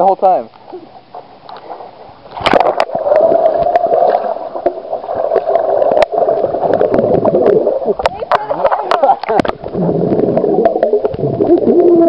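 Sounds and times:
muffled underwater water churning: 0.6s - 12.0s
bubbles popping and clicking: 2.4s - 12.0s.

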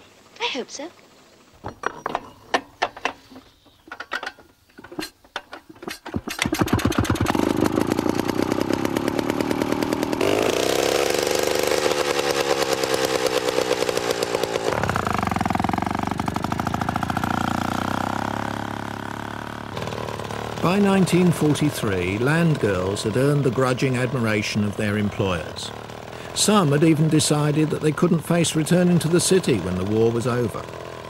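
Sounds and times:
metal clanks: 1.6s - 7.1s
small engine running: 5.8s - 31.0s.

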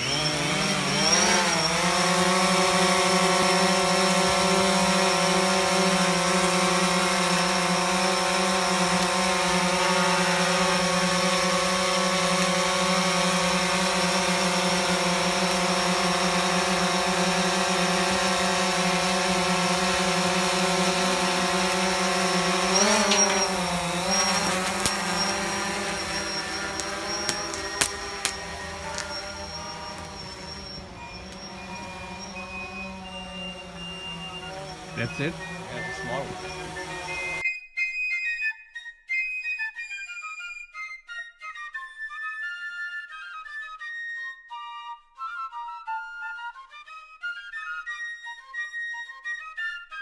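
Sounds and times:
quadcopter propellers whining: 0.0s - 37.4s.

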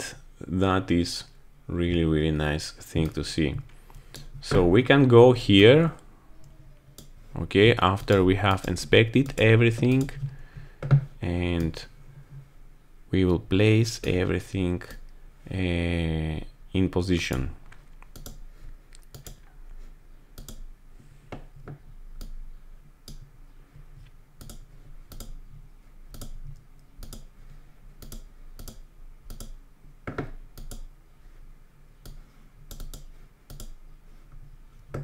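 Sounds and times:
faint low hum: 0.0s - 35.0s
computer mouse and keyboard clicks: 17.7s - 19.5s, 20.4s - 20.7s, 24.4s - 25.4s, 26.1s - 27.3s, 28.0s - 30.9s, 32.0s - 33.8s.

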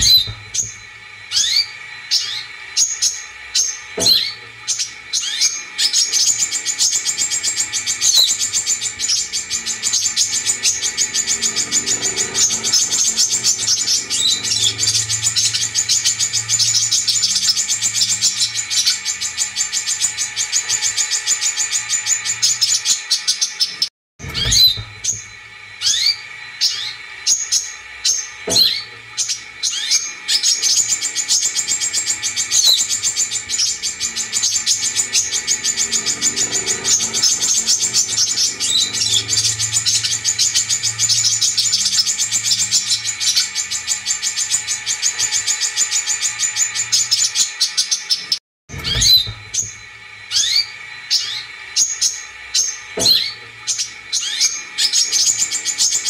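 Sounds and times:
bird high chattering trill: 0.0s - 23.4s.

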